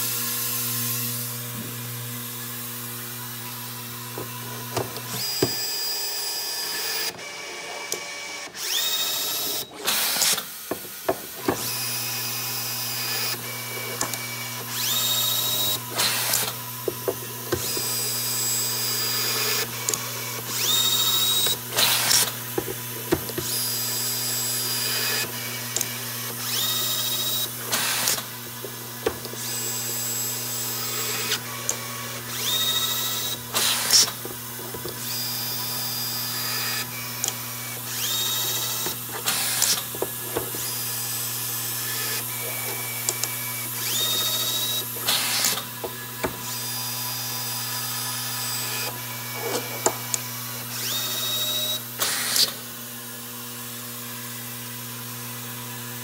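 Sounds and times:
electric screwdriver whine: 0.0 - 55.2.

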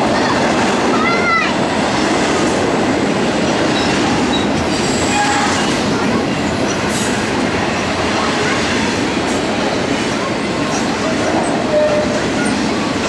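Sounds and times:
train wheels rumbling on rail: 0.0 - 13.0
high wheel squeals: 10.7 - 12.6.

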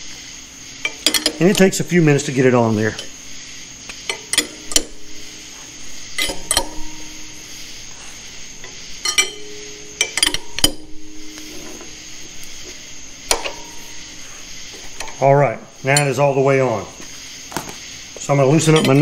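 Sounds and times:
steady hiss: 0.0 - 19.0
wrenches clinking against metal tool: 0.8 - 2.1, 2.8 - 3.2, 4.0 - 5.1, 6.2 - 7.3, 9.0 - 11.9, 13.3 - 14.2, 18.4 - 19.0.

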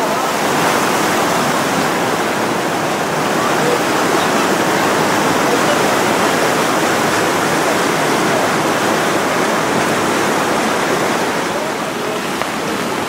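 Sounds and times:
torrent of churning water: 0.0 - 13.0.

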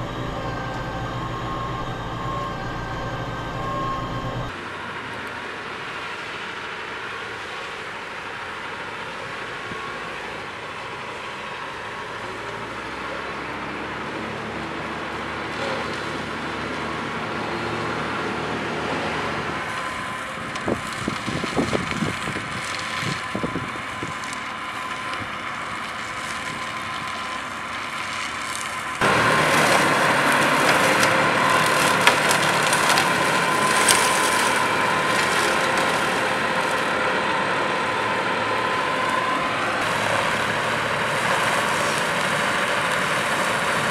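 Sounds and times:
tractor engine and mower noise: 0.0 - 43.9
irregular crackling: 19.8 - 36.9.

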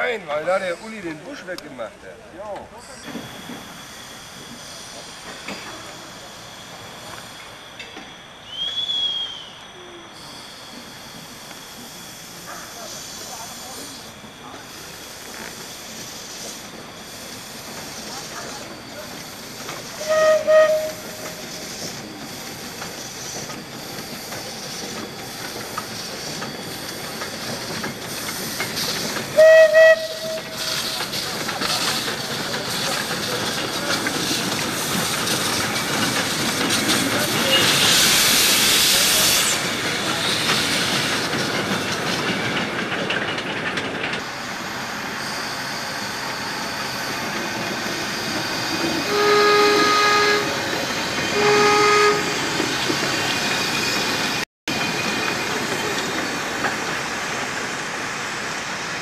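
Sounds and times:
steam locomotive running: 0.0 - 59.0
low-pitched whistle: 3.1 - 11.6, 19.9 - 22.0, 29.3 - 30.8, 45.2 - 50.6
steam whistle blast: 8.5 - 10.0, 19.9 - 22.0, 29.3 - 30.9, 48.8 - 50.6, 51.3 - 52.4.

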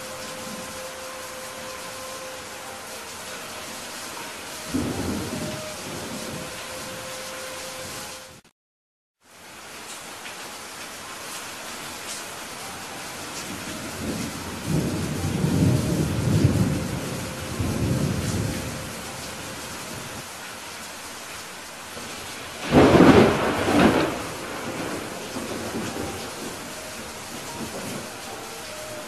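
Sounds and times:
thunder rumbling: 0.0 - 8.4, 13.4 - 20.2, 22.0 - 29.0
rain hissing: 0.0 - 8.5, 9.2 - 29.0
sharp thunderclap: 22.6 - 26.5.

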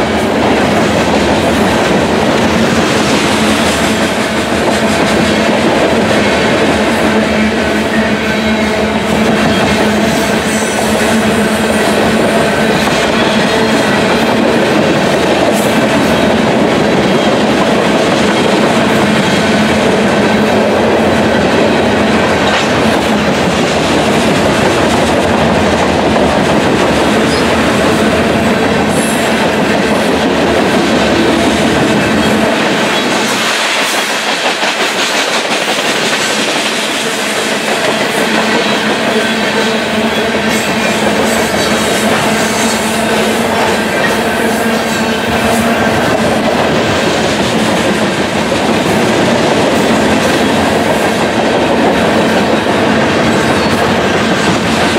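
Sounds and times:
freight train passing: 0.0 - 54.9
steel wheels rushing on rails: 0.0 - 54.9.

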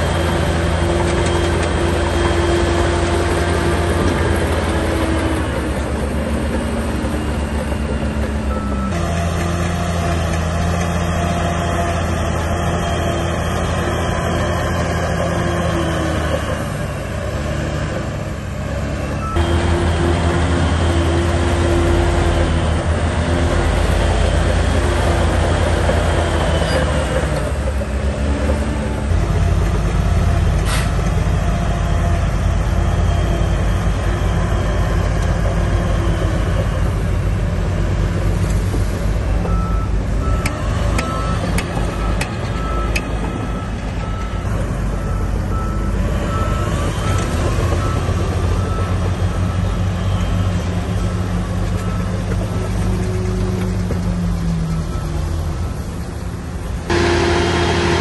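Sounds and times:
heavy diesel engine under load: 0.0 - 58.0
reversing alarm beeping: 7.1 - 10.2, 39.4 - 52.8.

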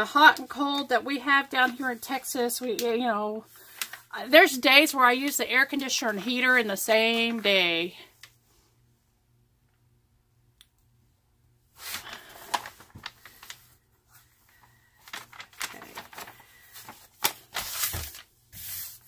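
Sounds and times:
plastic sheet peeling and crinkling: 11.8 - 19.0.

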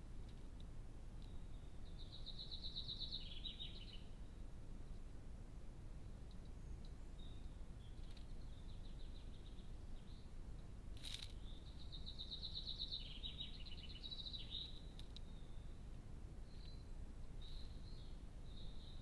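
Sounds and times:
songbird singing with trills: 1.2 - 4.2, 6.5 - 10.3, 11.4 - 15.8, 16.4 - 19.0.

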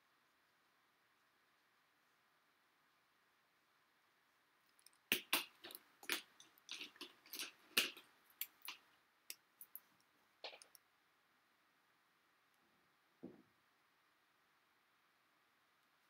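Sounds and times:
plastic pens clicking and rattling: 4.7 - 9.9.

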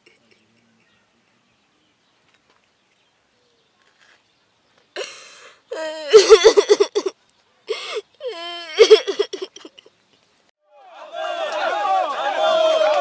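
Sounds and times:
girl crying loudly: 5.0 - 7.1, 7.7 - 9.8.

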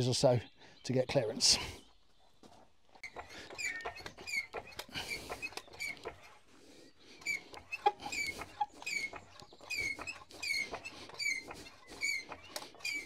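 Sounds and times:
hydraulic pump squeaking: 2.9 - 6.5, 7.1 - 13.0
small pump clicks: 3.0 - 6.4, 7.2 - 13.0.

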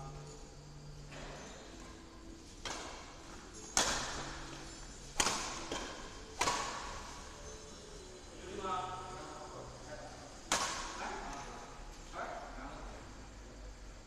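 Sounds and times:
racket striking shuttlecock: 2.4 - 7.2, 10.5 - 11.5.

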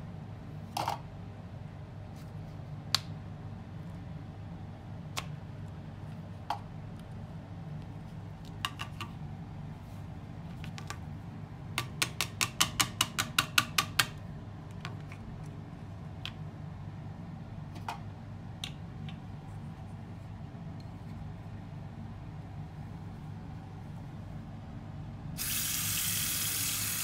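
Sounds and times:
steady low hum: 0.0 - 11.8, 14.1 - 25.4.

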